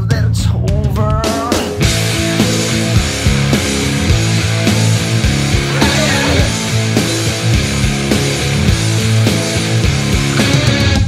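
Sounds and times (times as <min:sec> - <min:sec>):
rock music: 0:00.0 - 0:11.0.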